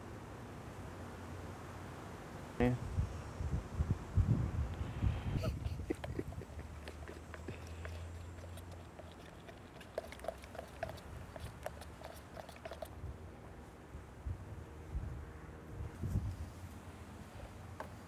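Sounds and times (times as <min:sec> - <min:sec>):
stir stick scraping plastic cup: 0:05.8 - 0:12.9.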